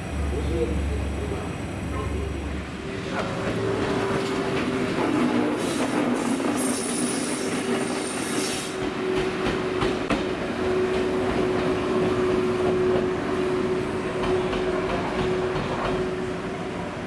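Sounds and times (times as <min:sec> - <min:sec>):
train rail running noise: 0:00.0 - 0:17.0
high wheel squeal: 0:05.6 - 0:08.8.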